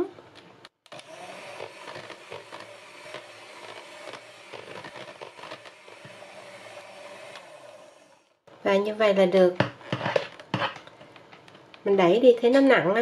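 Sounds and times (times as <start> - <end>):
electric hand mixer whine: 0.9 - 8.5
beaters scraping against bowl: 1.6 - 6.6.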